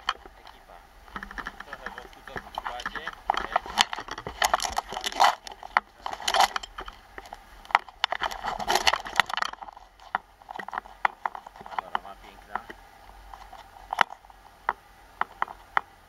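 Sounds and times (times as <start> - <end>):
skis scraping over snow: 1.6 - 7.1.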